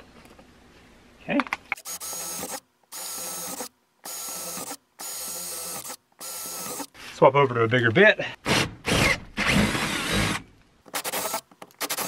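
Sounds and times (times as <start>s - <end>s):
cordless drill motor whining: 1.8s - 6.9s, 8.9s - 10.4s.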